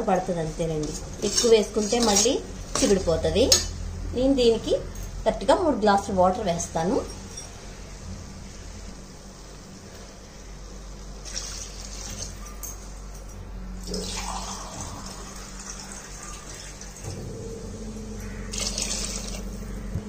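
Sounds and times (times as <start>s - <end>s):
water pouring and splashing: 11.2s - 12.4s, 13.8s - 17.2s, 18.5s - 19.5s.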